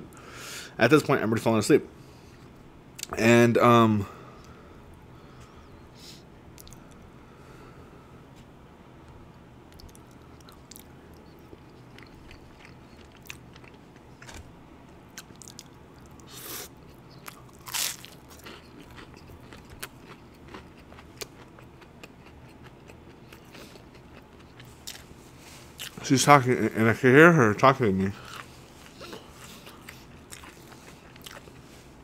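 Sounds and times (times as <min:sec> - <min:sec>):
crunching bites of fried food: 0:15.2 - 0:25.1.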